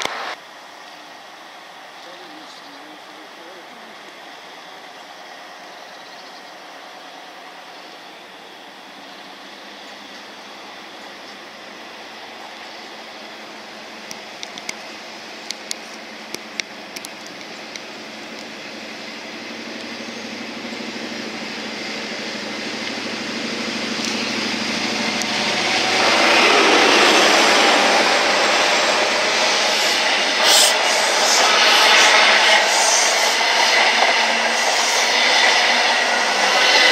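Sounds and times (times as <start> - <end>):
train diesel engine and wheels: 0.0 - 36.9
sharp clicks: 14.0 - 18.5.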